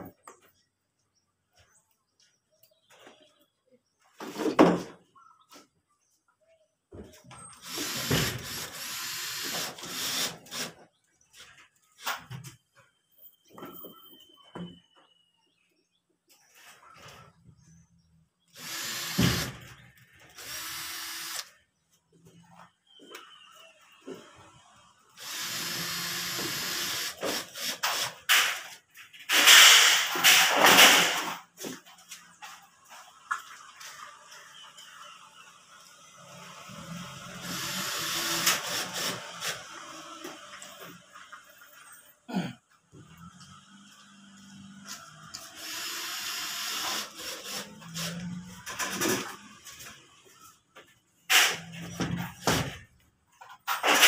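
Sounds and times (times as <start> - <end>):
cordless drill driving screws: 7.5 - 10.8, 18.5 - 21.5, 25.2 - 28.6, 36.6 - 40.8, 45.3 - 48.4.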